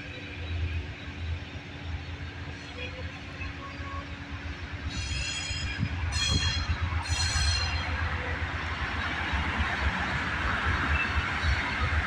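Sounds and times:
train approaching rumble: 0:00.0 - 0:12.0
high-pitched train squeals: 0:02.4 - 0:08.6.

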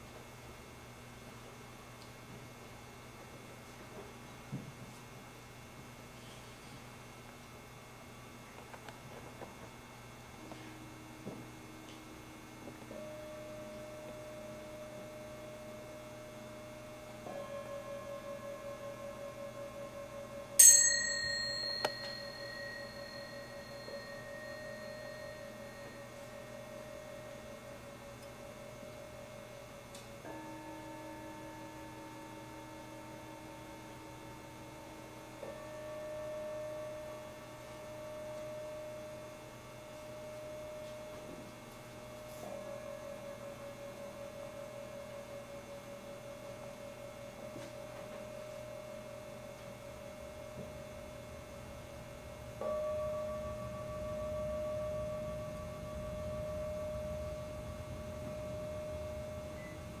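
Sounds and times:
metal singing bowls ringing: 0:12.8 - 1:00.0.

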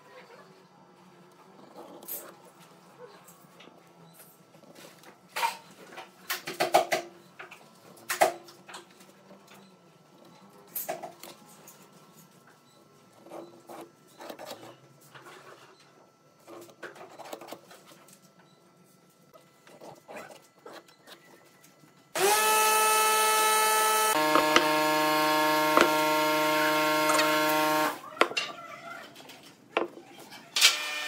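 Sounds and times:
pencil scratching: 0:19.6 - 0:21.3
power tool motor whine: 0:22.2 - 0:28.0
tools tapping on wood: 0:24.2 - 0:24.8, 0:25.7 - 0:26.1.

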